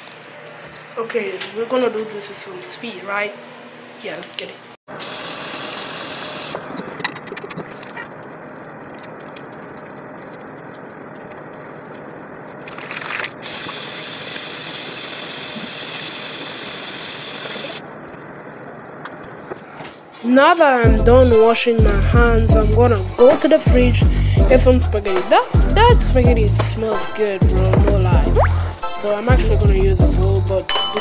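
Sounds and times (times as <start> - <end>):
hands rubbing and splashing: 7.6 - 14.0.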